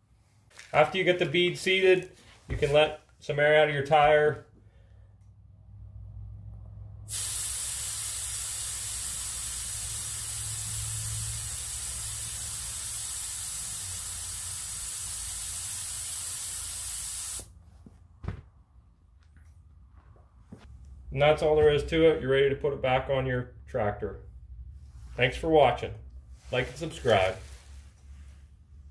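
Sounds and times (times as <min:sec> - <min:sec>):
air hissing from tire valve: 0:07.1 - 0:17.5
short knock: 0:18.2 - 0:18.5.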